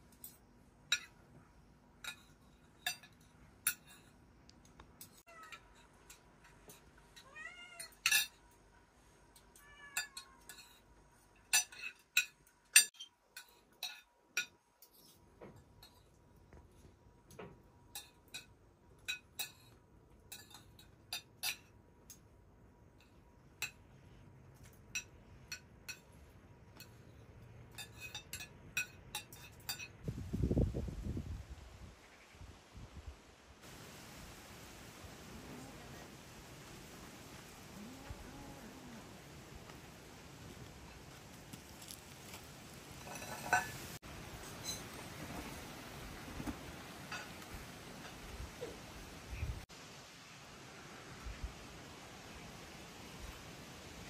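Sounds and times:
cat meowing: 0:07.2 - 0:08.0, 0:09.6 - 0:10.5.

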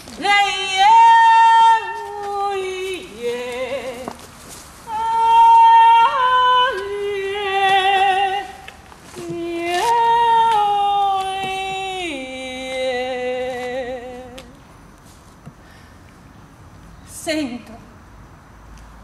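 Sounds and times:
woman singing wordless notes: 0:00.1 - 0:14.6.

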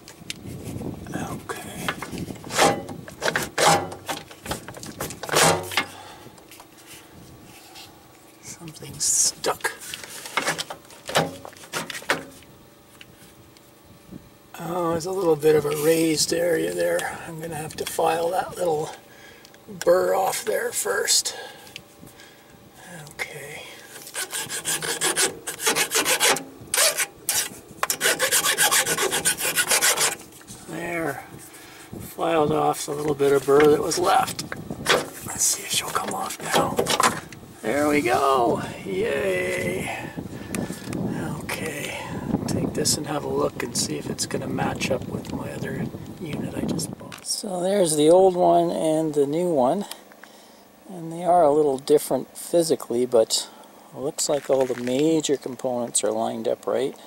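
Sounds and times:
hand file rasping on steel: 0:24.0 - 0:30.2.

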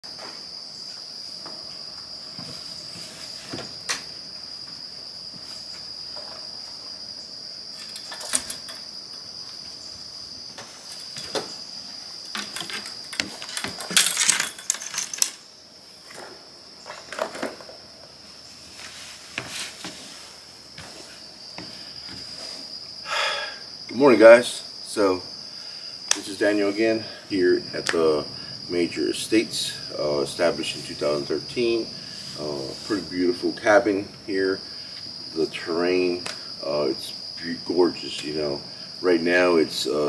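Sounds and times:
footsteps on wooden porch: 0:00.0 - 0:07.2, 0:07.8 - 0:22.9
high insect trill: 0:00.0 - 0:40.0.

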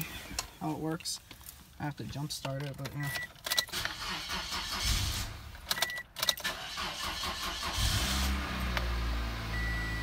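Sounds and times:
car engine starting and idling: 0:02.7 - 0:10.0.

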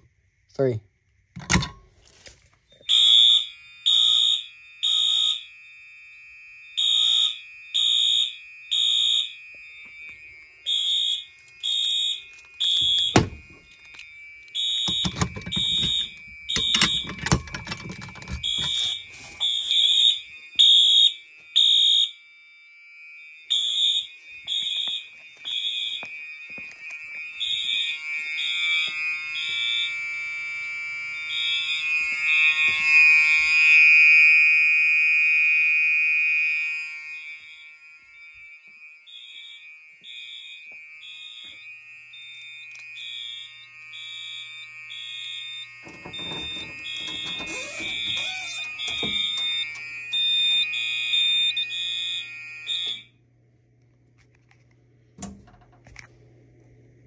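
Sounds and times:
steady alarm tone: 0:00.0 - 0:53.2
fire alarm horns beeping: 0:01.4 - 0:53.2.

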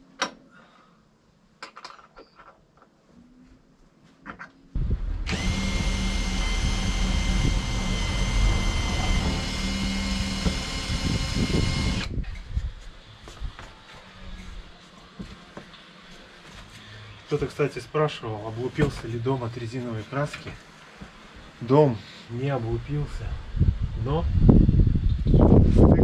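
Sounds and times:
power drill running: 0:04.8 - 0:12.2.

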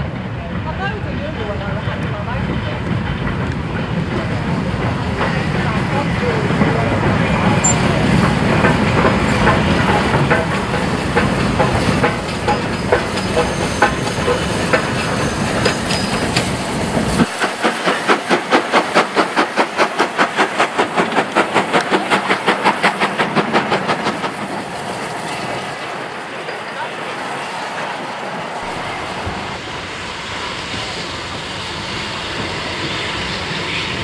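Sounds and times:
steam train rumbling: 0:00.0 - 0:34.0.

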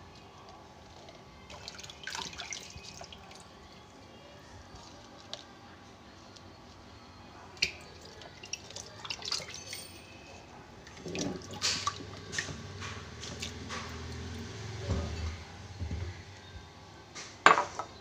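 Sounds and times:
water splashing in basin: 0:01.5 - 0:03.4, 0:07.6 - 0:09.9, 0:10.9 - 0:14.9.

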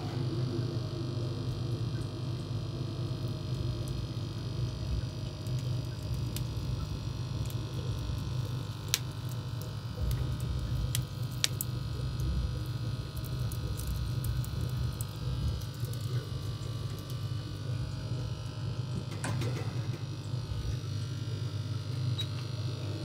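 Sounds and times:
wood fire low rumble: 0:00.0 - 0:23.0
fire crackling pops: 0:03.1 - 0:22.7.

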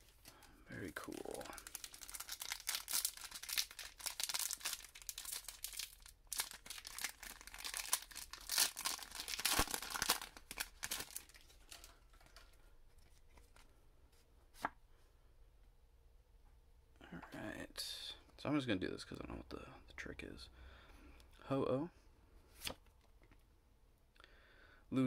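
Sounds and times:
foil pack tearing and crinkling: 0:01.1 - 0:11.8.

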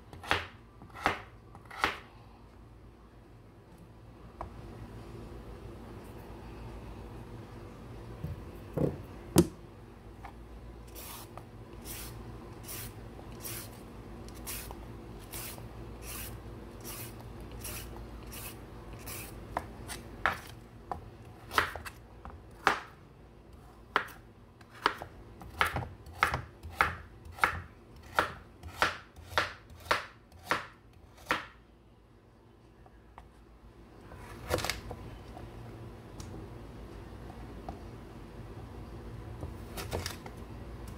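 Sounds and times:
knife chopping on wooden board: 0:00.2 - 0:02.0, 0:23.9 - 0:31.6.

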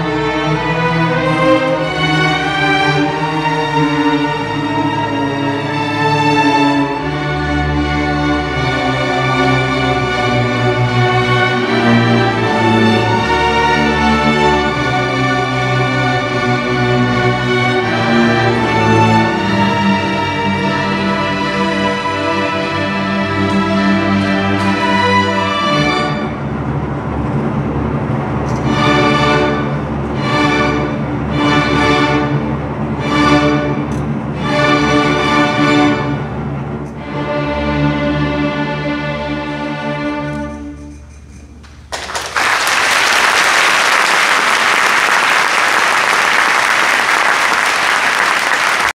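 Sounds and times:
string orchestra playing: 0:00.0 - 0:41.1
audience applause: 0:41.6 - 0:48.9.

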